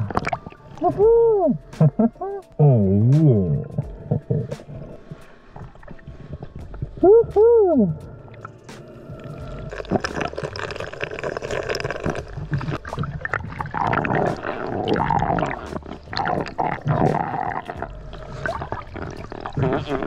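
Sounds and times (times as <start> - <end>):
underwater gurgling and bubbling: 0.0 - 20.0
irregular clicks and crackles: 9.7 - 20.0.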